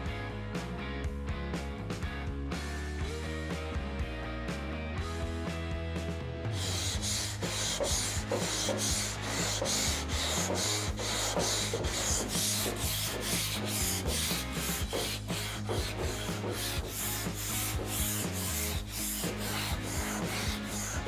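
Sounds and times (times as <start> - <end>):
sanding board scraping steel: 6.5 - 21.0.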